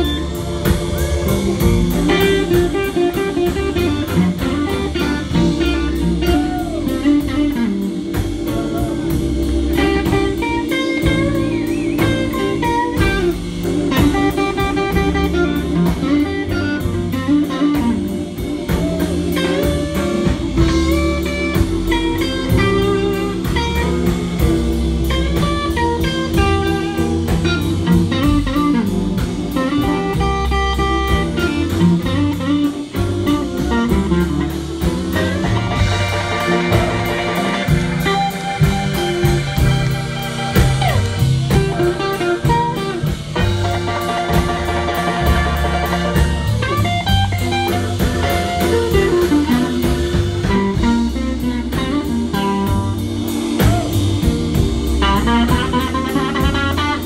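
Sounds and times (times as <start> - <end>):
electric guitar solo: 0.0 - 23.8, 34.8 - 43.5
drums: 0.0 - 57.0
upright bass: 0.0 - 57.0.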